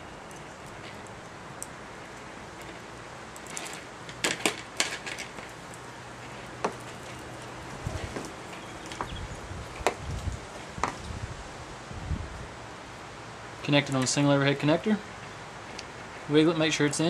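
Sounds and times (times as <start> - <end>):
handling noises: 0.0 - 11.1
wires rustling: 0.0 - 12.6.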